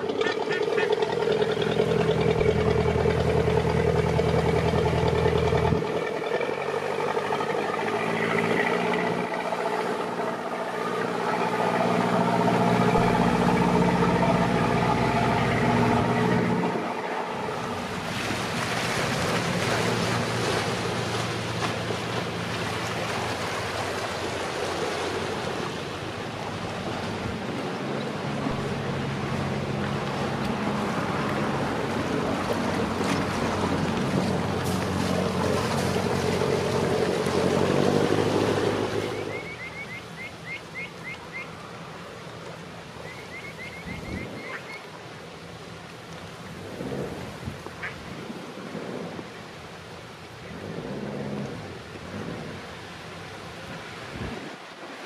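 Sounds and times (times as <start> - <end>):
water sloshing against bank: 0.0 - 39.3
boat engine running: 0.0 - 55.0.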